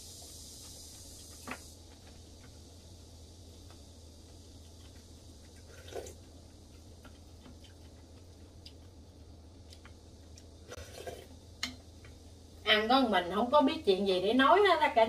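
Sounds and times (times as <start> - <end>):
steady low hum: 0.0 - 15.0
wet slurp: 5.6 - 6.2, 10.7 - 11.3.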